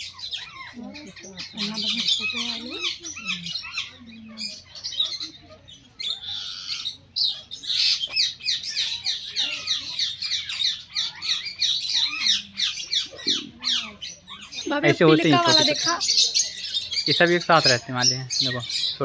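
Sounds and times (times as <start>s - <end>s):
parakeet flock squawking: 0.0s - 19.0s.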